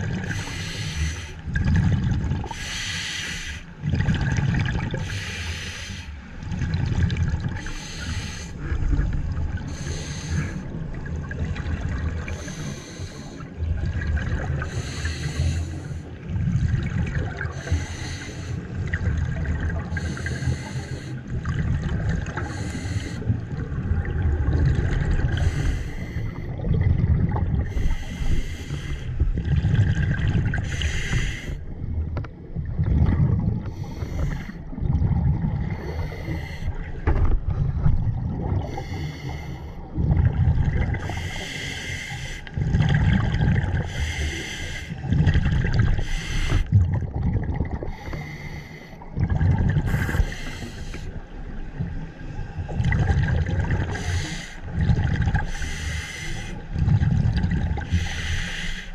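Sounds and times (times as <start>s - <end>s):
exhaled bubbles rumbling: 0.0s - 3.0s, 3.6s - 58.9s
regulator hissing inhale: 0.3s - 1.4s, 2.5s - 3.7s, 5.0s - 6.2s, 7.6s - 8.6s, 9.7s - 10.6s, 12.3s - 13.5s, 14.6s - 16.1s, 17.6s - 18.7s, 20.0s - 21.3s, 22.4s - 23.3s, 25.4s - 26.4s, 27.7s - 29.2s, 30.6s - 31.6s, 33.7s - 34.6s, 35.8s - 36.8s, 38.7s - 39.8s, 41.0s - 42.5s, 43.8s - 45.0s, 46.0s - 46.7s, 47.9s - 49.0s, 49.9s - 51.4s, 53.9s - 54.7s, 55.5s - 56.7s, 57.9s - 58.9s.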